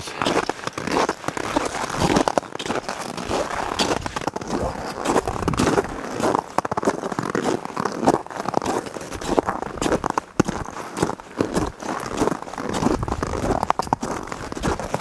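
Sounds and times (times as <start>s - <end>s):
spiked boots crunching on icy snow: 0.0s - 15.0s.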